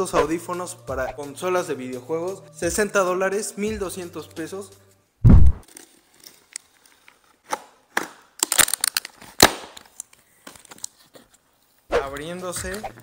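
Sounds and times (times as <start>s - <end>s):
deep thump: 5.2s - 5.6s
tape ripping: 5.6s - 11.3s.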